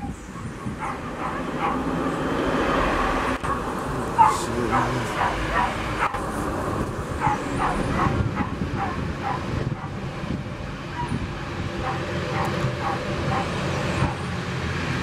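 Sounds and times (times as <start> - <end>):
turboprop engines rumbling: 0.0 - 15.0
dog barking: 0.3 - 1.9, 3.4 - 6.2, 7.2 - 10.0, 10.9 - 11.2, 11.8 - 14.3.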